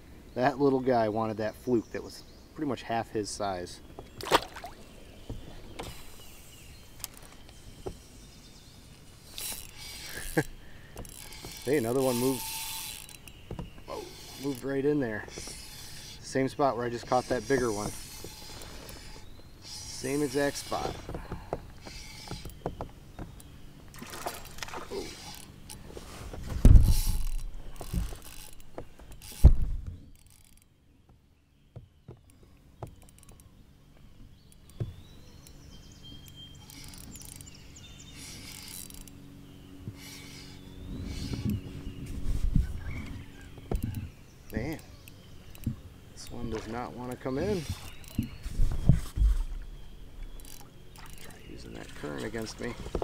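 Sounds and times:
fishing reel being cranked: 9.3 - 13.4, 14.1 - 14.7, 26.8 - 28.6, 36.6 - 37.6, 38.2 - 39.1, 50.4 - 51.4.

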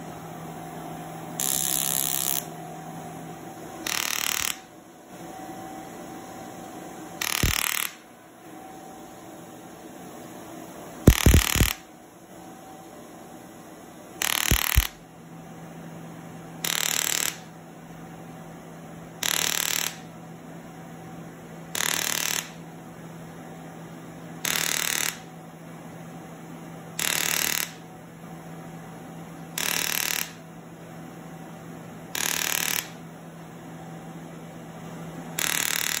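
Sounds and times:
steady low hum: 0.0 - 24.5
laser handpiece firing bursts: 3.9 - 4.7, 7.2 - 8.0, 11.1 - 11.8, 14.2 - 15.0, 16.6 - 17.5, 19.2 - 20.0, 21.8 - 22.6, 24.4 - 25.3, 27.0 - 27.8, 29.6 - 30.4, 32.2 - 33.0, 35.4 - 36.0.

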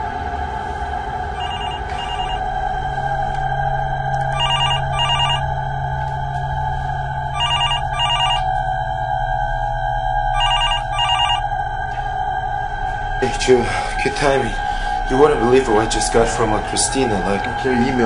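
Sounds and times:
droning background music: 0.0 - 18.0
telephone ringing: 1.4 - 2.4, 4.3 - 5.4, 7.4 - 8.5, 10.4 - 11.4.

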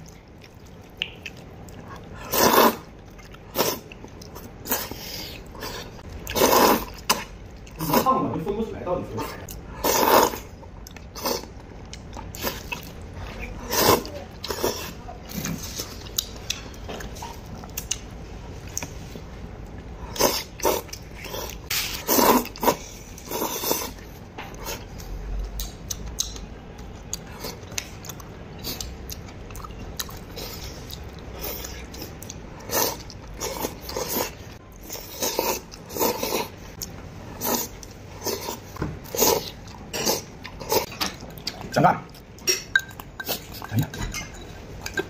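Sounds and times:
person chewing: 0.0 - 8.1, 9.2 - 43.9
person slurping noodles: 2.1 - 2.9, 4.6 - 7.2, 9.8 - 10.5, 20.1 - 24.0.

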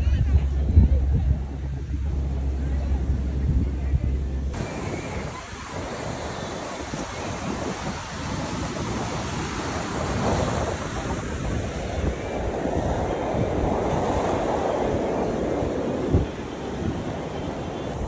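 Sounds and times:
wind buffeting microphone: 0.0 - 18.0
sea surf breaking on shore: 4.5 - 18.0.

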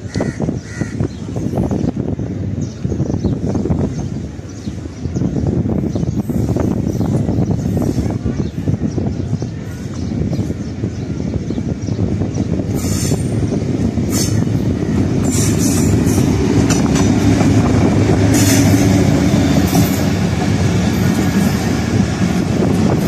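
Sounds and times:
locomotive engine droning: 12.4 - 23.0
train wheels knocking on rail joints: 12.5 - 23.0.

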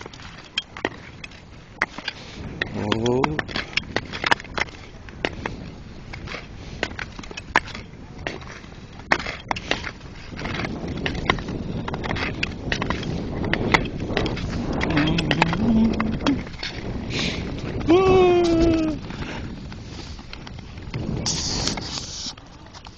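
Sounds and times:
ice skates scraping ice: 0.0 - 2.8, 3.4 - 17.9, 18.7 - 22.9
ice clicks and cracks: 0.0 - 16.9.

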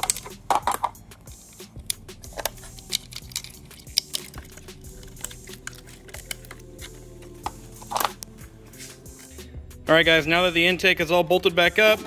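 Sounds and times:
plastic connectors clicking: 0.0 - 8.3
quiet background music: 0.0 - 12.0.

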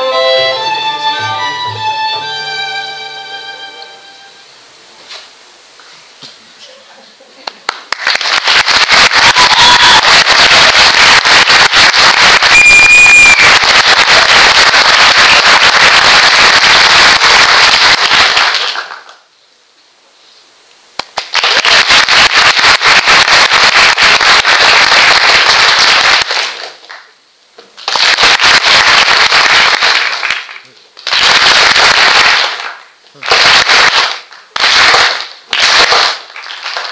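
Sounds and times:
audience applauding: 7.5 - 19.2, 21.0 - 27.2, 27.8 - 36.9.

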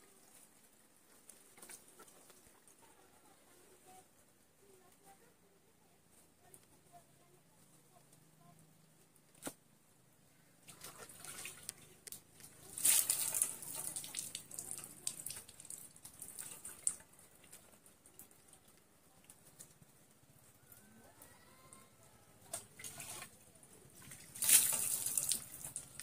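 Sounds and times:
water splashing onto wooden platform: 10.6 - 18.6, 24.0 - 26.0.

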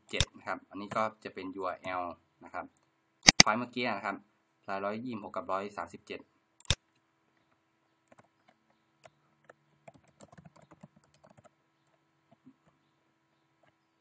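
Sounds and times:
faint keyboard typing: 7.5 - 12.8.

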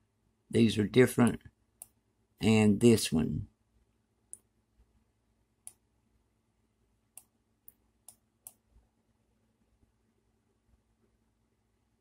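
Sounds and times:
faint steady hum: 0.0 - 12.0
computer mouse clicking: 5.6 - 5.8, 7.2 - 8.6.

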